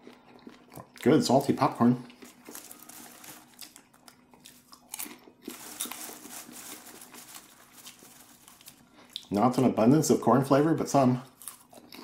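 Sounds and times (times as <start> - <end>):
popcorn crunching while chewed: 0.0 - 9.7, 11.1 - 12.0
popcorn rustling in wooden bowl: 2.2 - 9.4.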